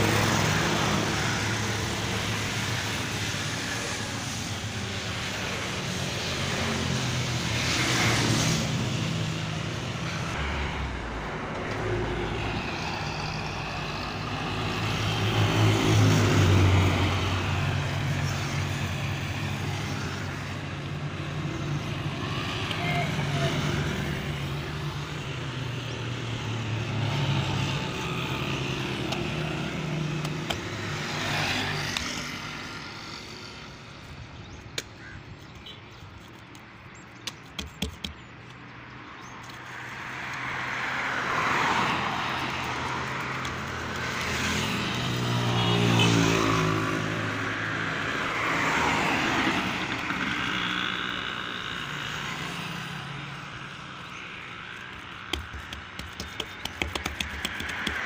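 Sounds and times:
motor vehicles passing: 0:00.0 - 0:35.2, 0:38.1 - 0:58.0
sharp taps: 0:55.3 - 0:58.0.

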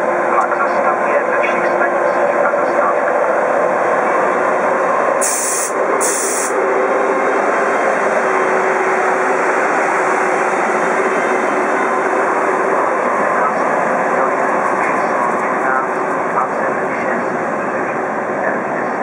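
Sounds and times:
electric locomotive passing: 0:00.0 - 0:19.0
high hiss bursts: 0:05.2 - 0:06.5.

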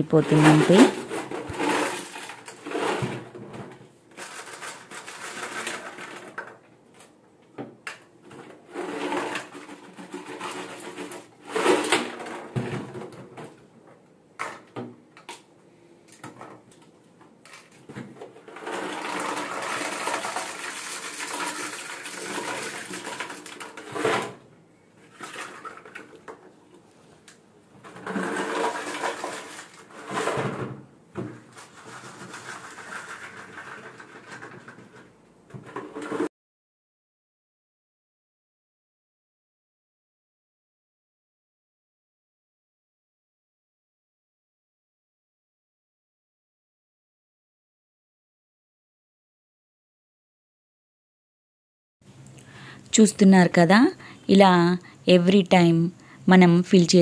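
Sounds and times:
salt pouring through plastic funnel: 0:18.8 - 0:23.6.

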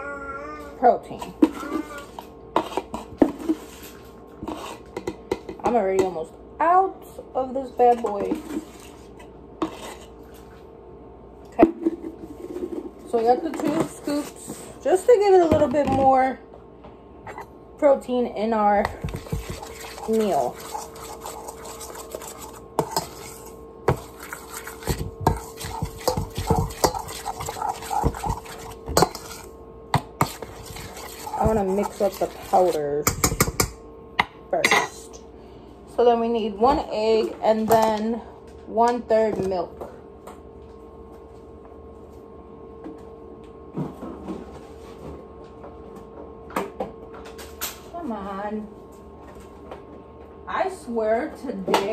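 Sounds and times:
steady faint hum: 0:00.0 - 0:51.9
utensil clinking in metal bowl: 0:18.8 - 0:29.5, 0:30.2 - 0:33.8.

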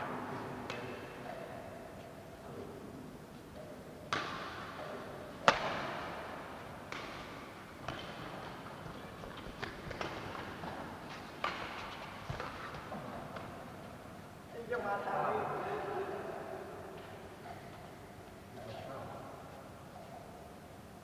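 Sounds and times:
racket hitting shuttlecock: 0:00.5 - 0:01.5, 0:04.1 - 0:13.6.

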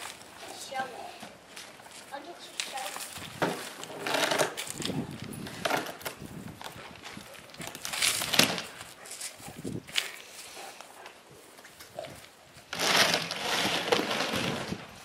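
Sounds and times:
packed snow crunching: 0:12.7 - 0:14.9.

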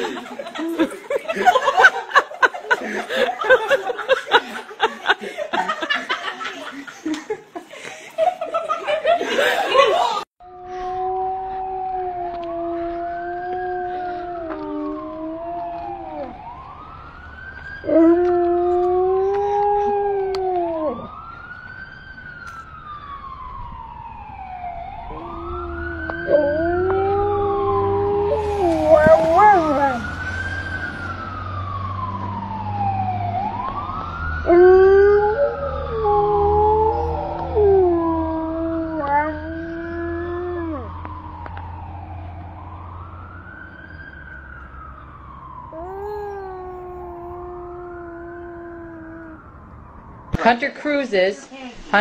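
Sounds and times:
siren wailing: 0:10.4 - 0:51.0
dog howling: 0:25.1 - 0:30.1, 0:34.5 - 0:40.9.

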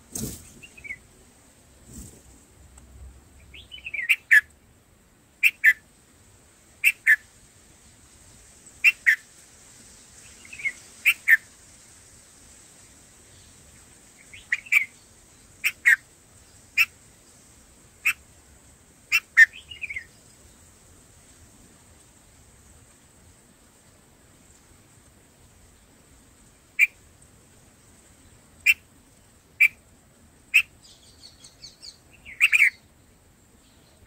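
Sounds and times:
bird calling sharp notes: 0:03.5 - 0:04.5, 0:05.4 - 0:05.8, 0:06.8 - 0:07.2, 0:30.6 - 0:32.8.

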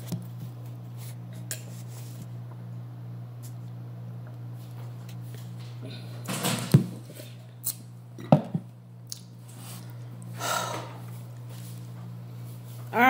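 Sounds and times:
cup knocking on table: 0:08.3 - 0:08.7
breathy exhale: 0:10.4 - 0:11.0.

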